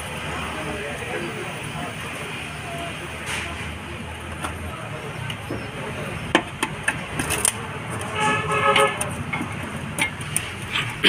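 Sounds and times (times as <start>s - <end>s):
car horn: 8.1s - 9.2s.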